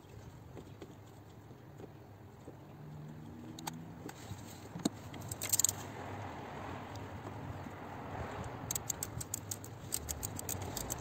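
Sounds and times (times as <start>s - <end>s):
metal tools clicking and tapping: 5.2s - 5.8s, 8.6s - 11.0s
sharp click: 8.6s - 11.0s.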